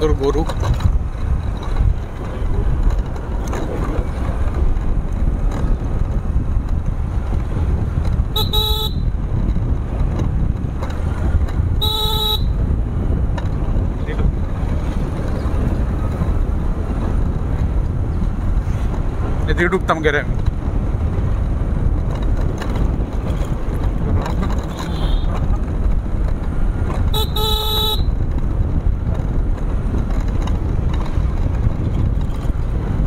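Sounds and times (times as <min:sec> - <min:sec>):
motorcycle engine: 0:00.0 - 0:33.0
horn beeps: 0:08.3 - 0:09.0, 0:11.8 - 0:12.6, 0:24.9 - 0:25.3, 0:27.1 - 0:28.1.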